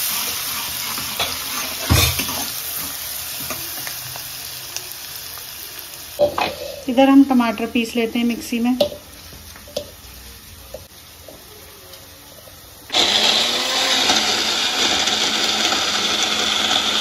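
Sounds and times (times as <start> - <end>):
mixer grinder running: 12.9 - 17.0.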